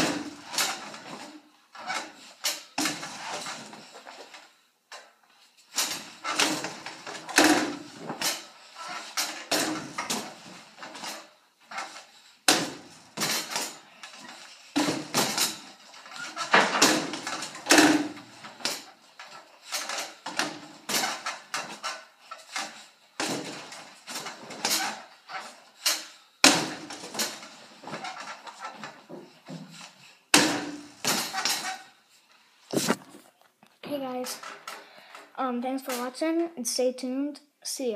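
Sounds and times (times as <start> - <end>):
balls dropping onto ramp: 5.8 - 21.9, 22.5 - 25.1, 25.9 - 31.9
basketballs thudding on backboard: 12.5 - 13.8, 14.8 - 15.7, 26.4 - 28.1, 30.3 - 31.7.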